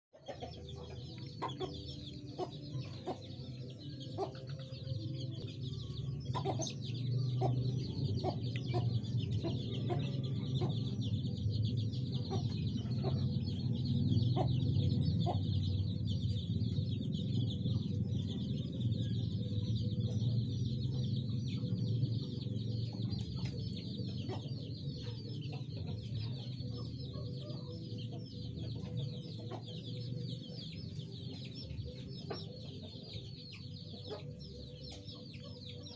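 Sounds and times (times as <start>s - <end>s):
fowl clucking: 0.2s - 3.3s
low rumble: 4.8s - 35.7s.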